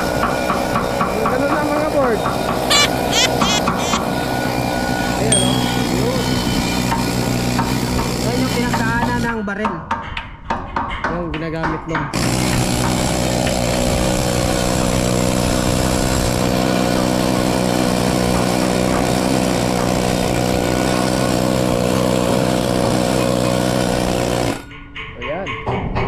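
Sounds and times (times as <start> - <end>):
pneumatic chipping gun buzzing: 2.7 - 4.0.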